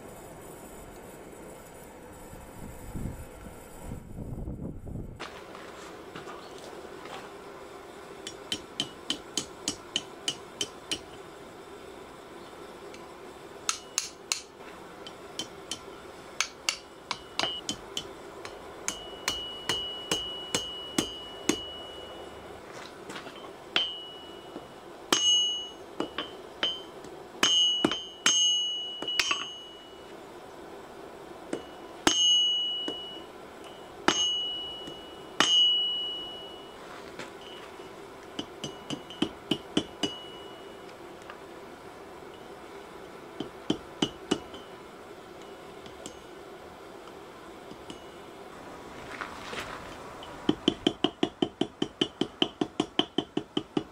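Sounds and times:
hammer ringing on anvil: 8.2 - 11.2, 13.7 - 14.5, 15.1 - 22.5, 23.3 - 30.1, 31.5 - 36.8, 37.4 - 40.9, 43.4 - 44.8, 47.8 - 48.3.

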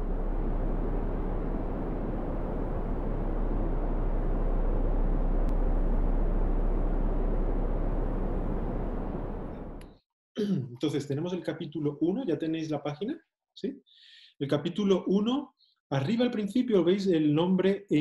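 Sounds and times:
wind and sea rushing: 0.0 - 9.8
deep constant rumble: 0.0 - 9.9.

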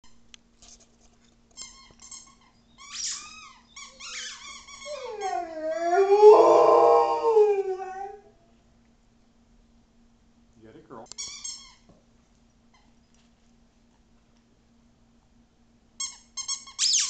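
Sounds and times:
dog howling: 4.8 - 8.4.

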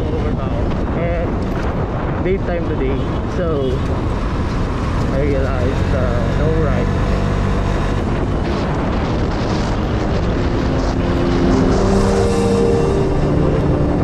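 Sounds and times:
wind buffeting microphone: 0.0 - 14.0
held music notes: 10.0 - 14.0.

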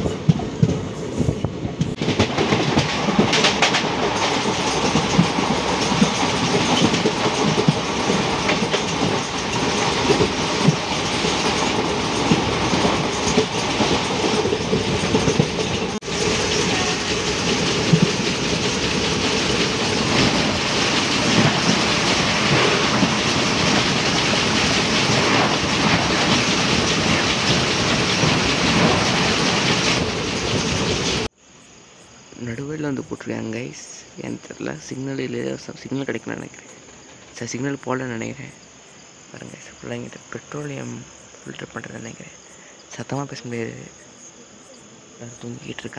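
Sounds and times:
passing train rushing alongside: 0.0 - 31.3
train rumbling at speed: 0.0 - 31.4, 32.4 - 45.9.

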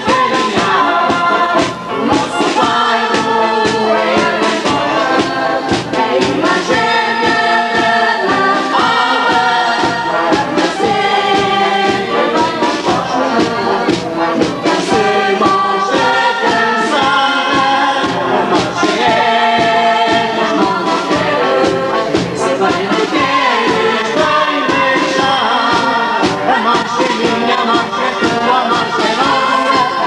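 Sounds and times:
band playing march beat: 0.0 - 30.0
chorus singing in unison: 0.0 - 30.0.

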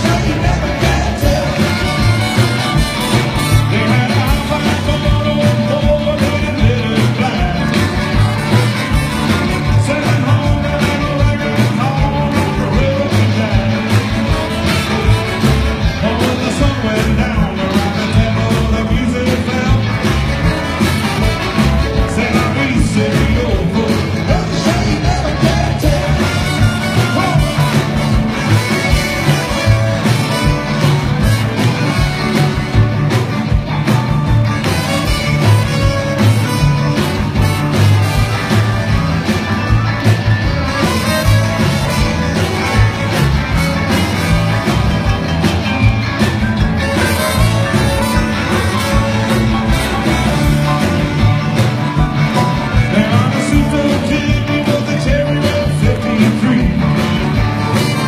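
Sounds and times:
male lead vocal: 0.0 - 8.5, 9.2 - 14.8, 15.5 - 20.6, 21.6 - 29.4, 52.4 - 58.0
accordion: 0.0 - 16.9, 19.8 - 58.0
live rock and roll band: 0.0 - 58.0.

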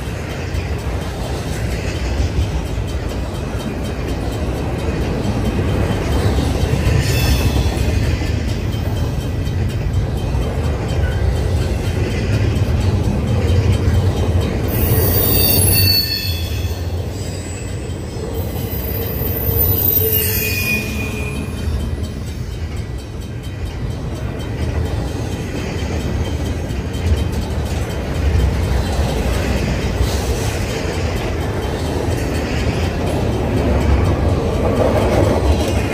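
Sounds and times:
freight train rumbling past: 0.0 - 35.9
high wheel squeal: 6.8 - 8.2, 14.7 - 22.2.

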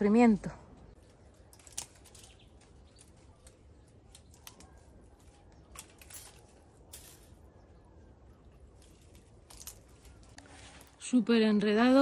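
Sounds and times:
faint clicks and crackles: 0.9 - 7.4.

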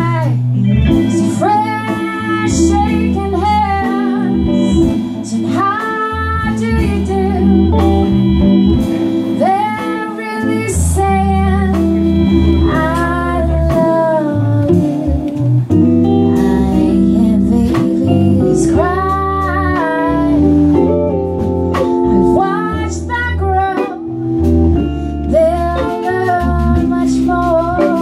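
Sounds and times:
woman singing: 0.0 - 8.1, 9.3 - 21.2, 21.8 - 24.1, 25.2 - 28.0
live band playing: 0.0 - 28.0.

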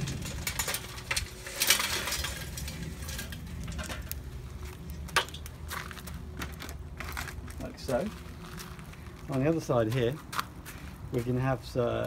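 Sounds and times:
charcoal clattering into grill: 0.0 - 7.5.

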